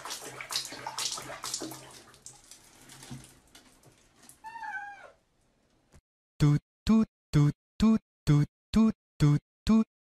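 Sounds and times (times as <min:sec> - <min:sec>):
water splashing in a plastic basin: 0:00.0 - 0:04.5
cat meowing: 0:04.4 - 0:05.2.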